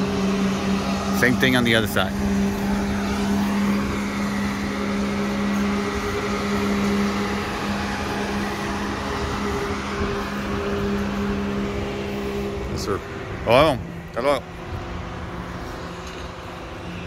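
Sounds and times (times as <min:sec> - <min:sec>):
machinery droning: 0:00.0 - 0:17.0
wind rumbling on microphone: 0:02.1 - 0:17.0.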